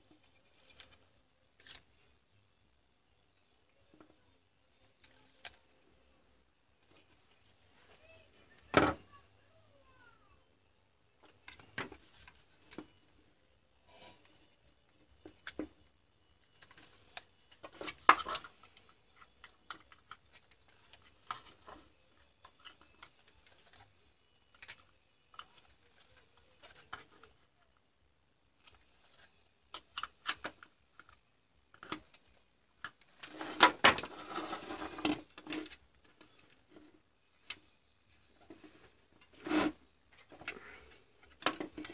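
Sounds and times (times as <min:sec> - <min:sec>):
plastic scraping and rattling: 0:16.4 - 0:27.4, 0:28.6 - 0:41.9.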